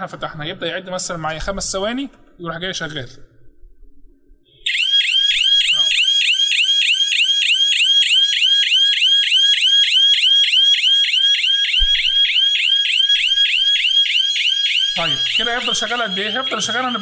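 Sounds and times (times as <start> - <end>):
electronic alarm siren: 4.6 - 17.0.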